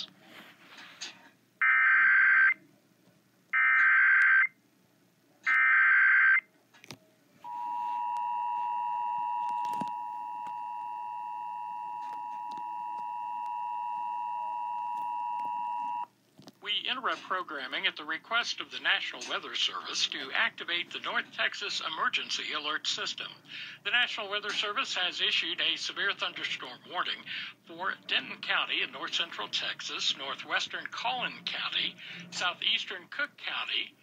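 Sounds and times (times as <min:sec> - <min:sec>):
two-tone attention signal: 0:07.4 - 0:16.1.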